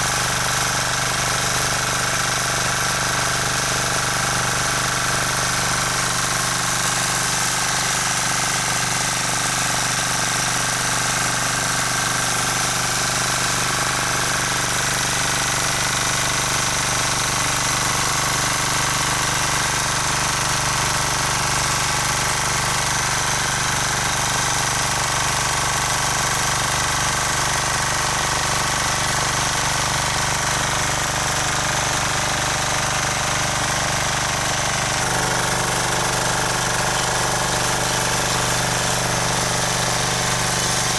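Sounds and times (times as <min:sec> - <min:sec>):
rotary tiller engine running: 0:00.0 - 0:40.9
tines churning soil: 0:33.8 - 0:40.9.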